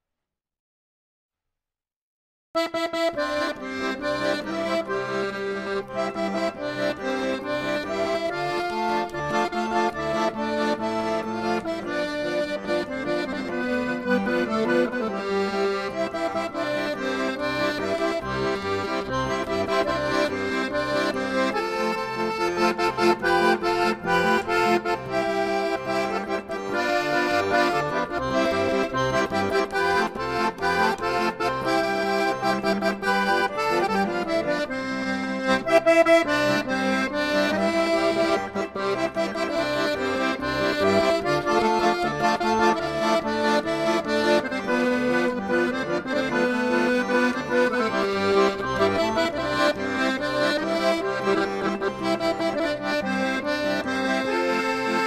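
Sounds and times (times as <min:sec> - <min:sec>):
instrumental background music: 0:02.6 - 0:55.0.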